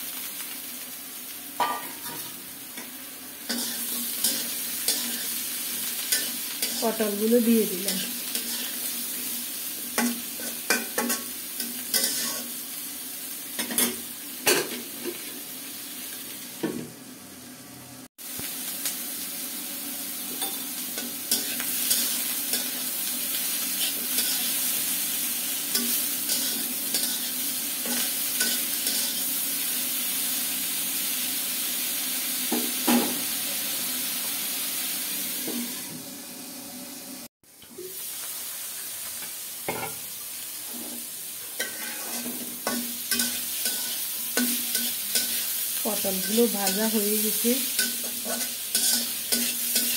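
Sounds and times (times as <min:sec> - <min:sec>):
vegetables sizzling in hot oil: 0:00.0 - 0:49.9
spatula scraping a pan: 0:03.5 - 0:05.4, 0:06.0 - 0:06.9, 0:07.8 - 0:08.9, 0:10.0 - 0:12.6, 0:23.6 - 0:24.7, 0:25.7 - 0:29.3, 0:40.6 - 0:45.6, 0:47.7 - 0:49.9.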